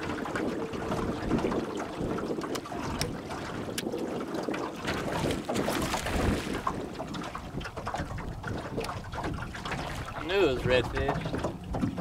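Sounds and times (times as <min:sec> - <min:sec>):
water sloshing around boat: 0:00.0 - 0:12.0
wind buffeting microphone: 0:00.0 - 0:12.0.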